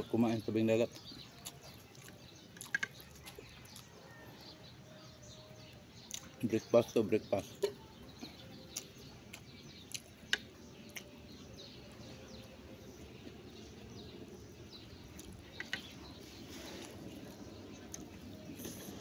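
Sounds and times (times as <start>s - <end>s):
mouth clicks and lip smacks: 6.0s - 6.4s, 8.7s - 11.1s.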